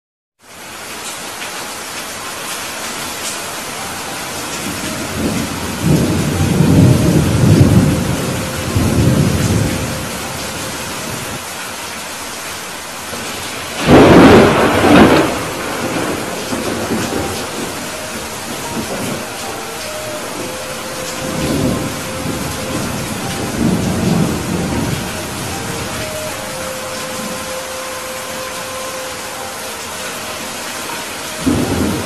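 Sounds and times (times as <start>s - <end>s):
heavy rain: 0.4s - 32.0s
thunder rumbling: 4.3s - 11.4s, 13.1s - 28.9s, 30.9s - 32.0s
thunder crash: 13.2s - 25.9s.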